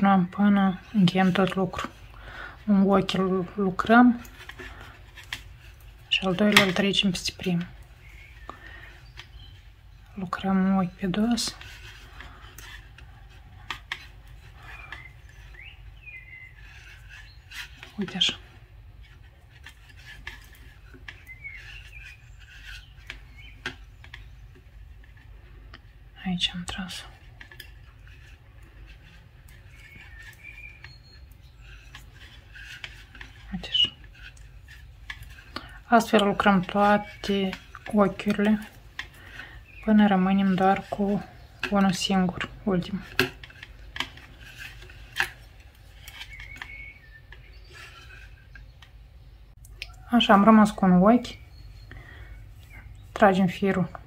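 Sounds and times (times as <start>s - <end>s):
yarn scraping softly: 0.0s - 49.6s
low steady hum: 0.0s - 54.0s.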